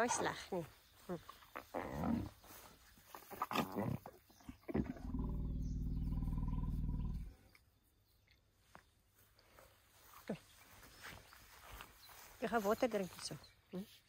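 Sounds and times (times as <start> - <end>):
elephant calf rumbling: 3.3 - 7.3.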